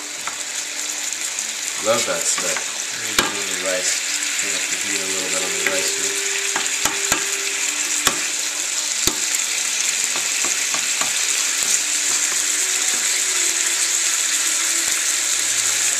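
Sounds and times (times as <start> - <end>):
carrots sizzling in frying pan: 0.0 - 15.9
wooden spoon knocking on pan: 2.3 - 3.5, 6.5 - 7.3, 8.0 - 8.4, 9.0 - 9.4, 10.1 - 12.5.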